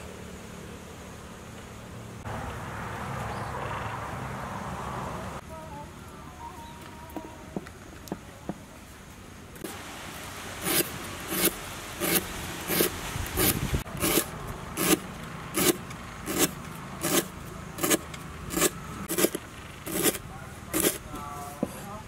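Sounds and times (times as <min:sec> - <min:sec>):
short scraping strokes: 0:10.6 - 0:22.0.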